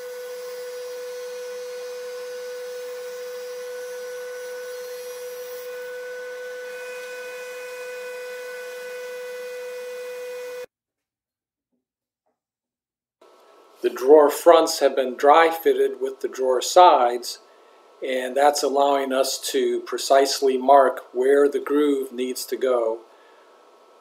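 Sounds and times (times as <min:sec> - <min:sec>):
router whining: 0:00.0 - 0:10.7.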